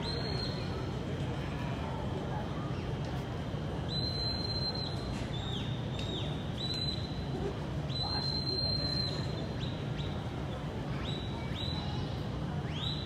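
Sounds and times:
crowd murmur: 0.0 - 13.0
high whistled commands: 3.9 - 5.1.

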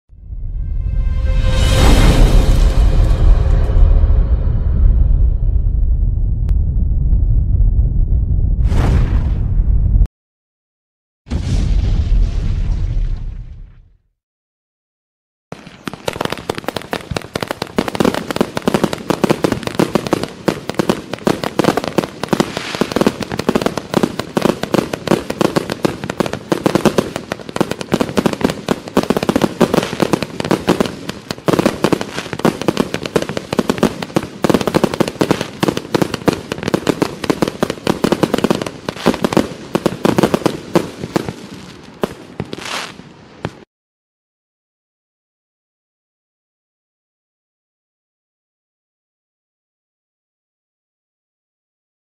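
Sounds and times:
firework volley of bangs: 11.3 - 13.9, 15.5 - 43.7.

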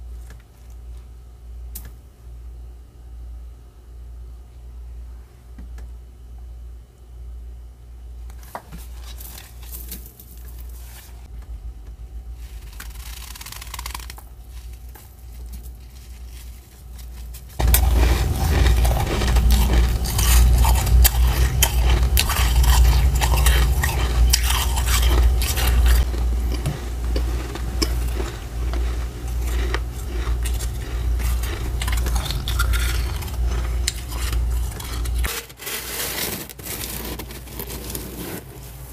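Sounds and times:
frost crunching: 12.3 - 38.9
metal spoon scraping frost: 12.4 - 26.1, 27.2 - 38.8.

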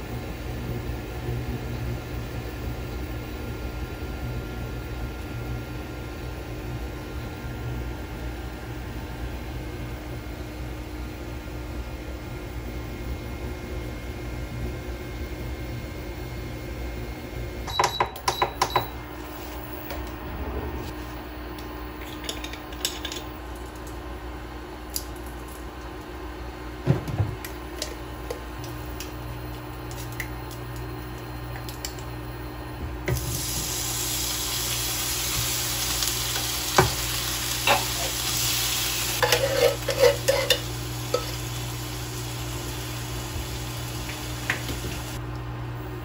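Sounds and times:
spatula scraping in frying pan: 39.2 - 41.3.

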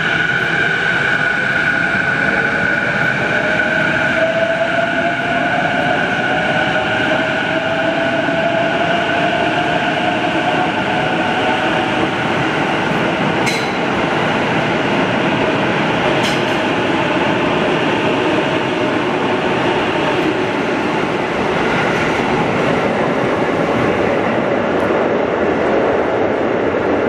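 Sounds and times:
train wheels rumbling: 0.0 - 27.0.

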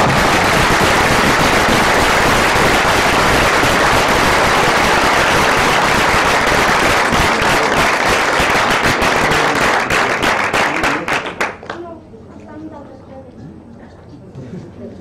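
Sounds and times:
audience applauding: 0.0 - 11.8.

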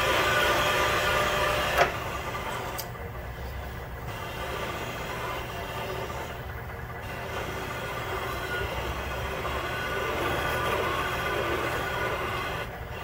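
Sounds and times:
machine spindle humming: 0.0 - 13.0
sharp click: 2.7 - 3.0.

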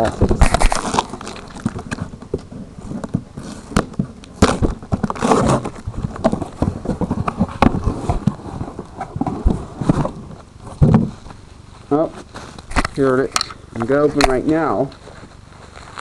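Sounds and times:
wrapping rustling: 0.0 - 13.2, 13.9 - 16.0
package crackles and snaps: 0.3 - 2.0.

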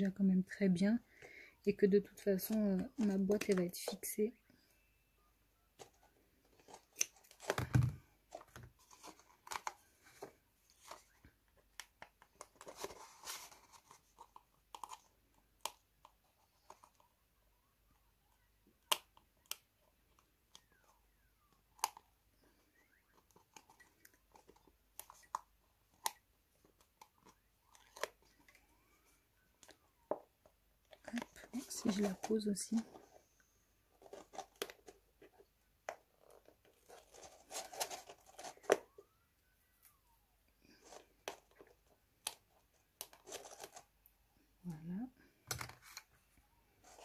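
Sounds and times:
paper rustling: 5.8 - 11.3, 12.3 - 15.1, 36.1 - 38.9, 43.1 - 43.9, 46.8 - 47.0.

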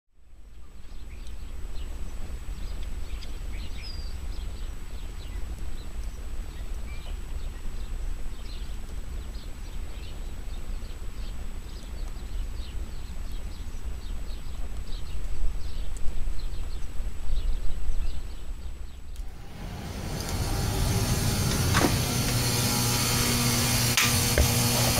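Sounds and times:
small birds chirping: 0.4 - 24.0
low uneven rumble: 19.2 - 24.9.

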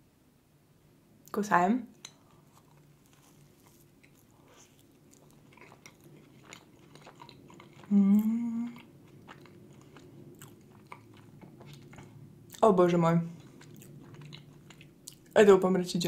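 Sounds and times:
soft chewing: 1.9 - 15.6
person humming mmm: 7.8 - 8.9.

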